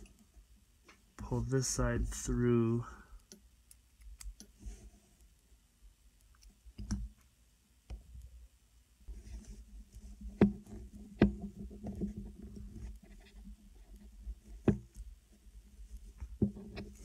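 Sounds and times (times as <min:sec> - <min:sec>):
rubbing and handling noise: 0:03.8 - 0:05.4, 0:09.0 - 0:17.0.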